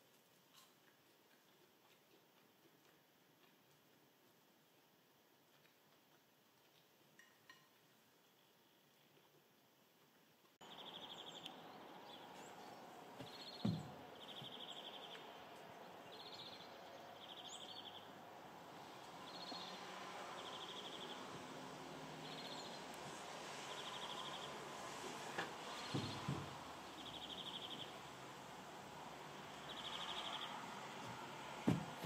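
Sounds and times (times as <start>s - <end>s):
dull thump: 13.2s - 14.0s, 31.6s - 32.0s.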